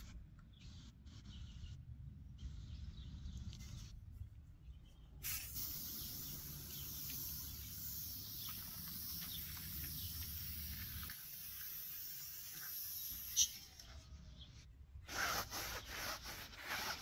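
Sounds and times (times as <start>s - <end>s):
aerosol can spraying hiss: 5.2s - 13.7s.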